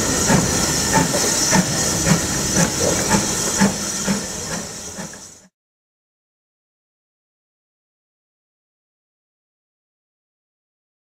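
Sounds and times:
steam hissing: 0.0 - 5.5
steam locomotive chuffing: 0.0 - 5.5.

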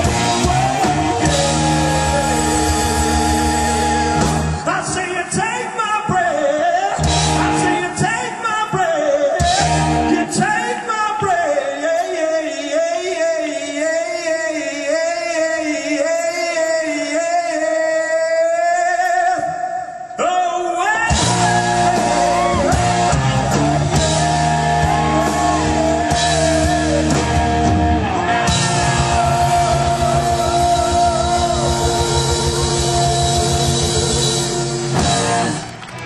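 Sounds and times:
rock band playing: 0.0 - 5.1, 6.9 - 8.4, 9.3 - 10.9, 21.1 - 36.0
man singing with vibrato: 0.0 - 35.5.

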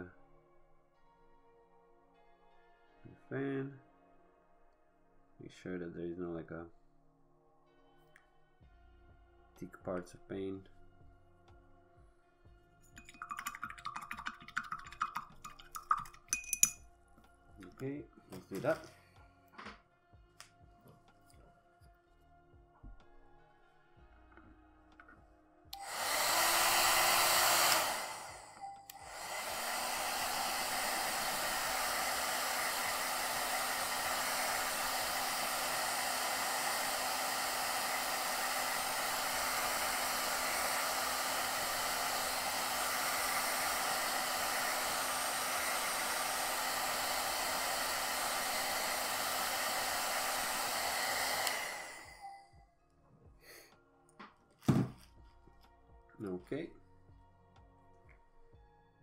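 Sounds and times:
electric blower humming: 25.8 - 52.4.

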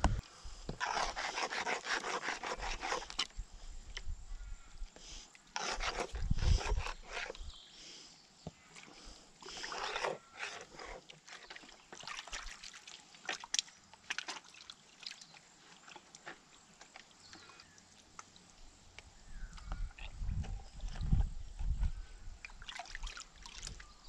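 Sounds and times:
creek water sloshing: 0.0 - 3.3, 5.4 - 7.5, 8.6 - 19.2, 19.8 - 24.0
small clicks and splashes: 8.7 - 21.8, 22.4 - 23.9.

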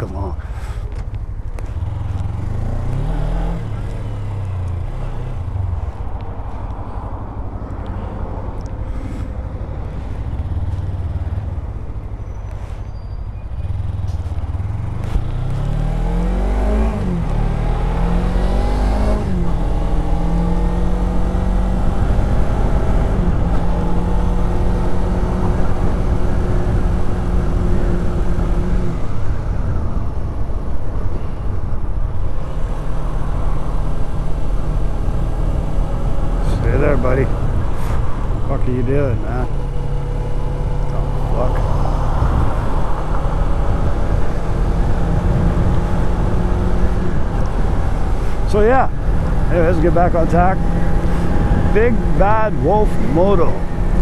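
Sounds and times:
motorcycle engine accelerating: 1.6 - 6.0, 13.6 - 30.7, 32.2 - 54.0
wind noise: 41.6 - 52.8.

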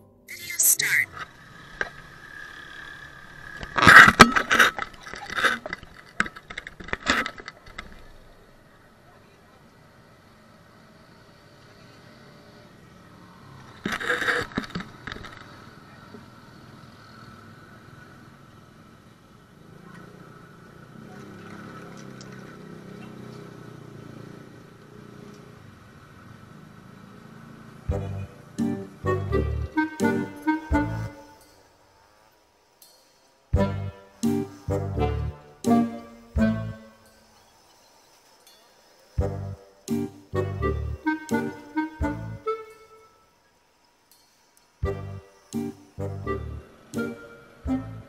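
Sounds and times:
vehicle engine running: 1.2 - 5.3.

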